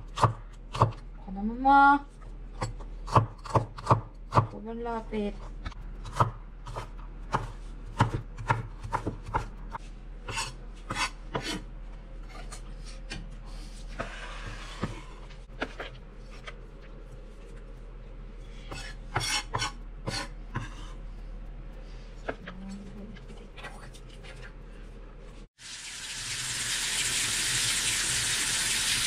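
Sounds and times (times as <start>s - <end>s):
knife chopping on wooden board: 6.0s - 9.5s
knife scraping board: 10.2s - 16.5s, 18.6s - 21.0s.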